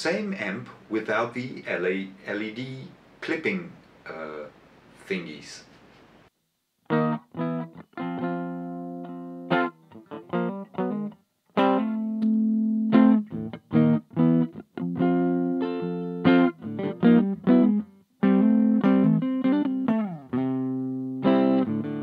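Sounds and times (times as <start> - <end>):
electric guitar playing: 6.9 - 22.0.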